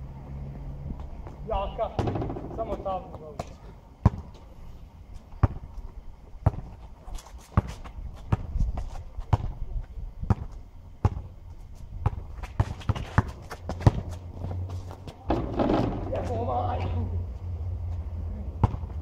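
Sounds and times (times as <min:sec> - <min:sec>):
basketball bouncing on asphalt: 0:00.9 - 0:04.5, 0:05.2 - 0:09.6, 0:10.2 - 0:17.0, 0:18.5 - 0:19.0
sneakers scuffing: 0:05.2 - 0:15.4.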